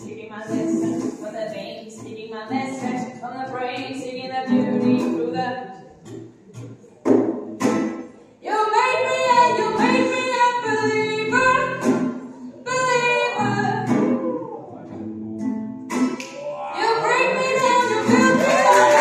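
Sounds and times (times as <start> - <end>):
woman singing: 0.0 - 5.7, 8.4 - 12.0, 12.6 - 14.3, 16.8 - 19.0
guitar: 0.0 - 19.0.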